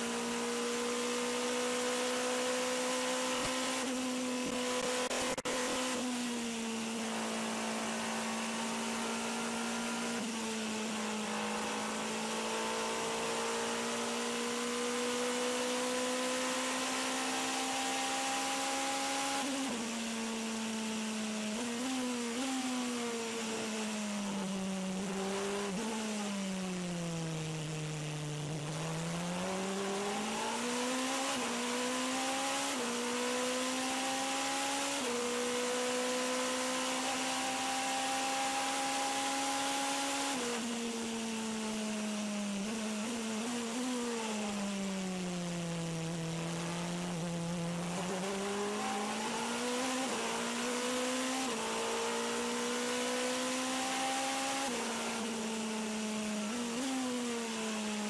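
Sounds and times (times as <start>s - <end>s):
road noise: 0.0s - 14.9s, 15.6s - 33.4s
race car engine: 0.0s - 58.0s.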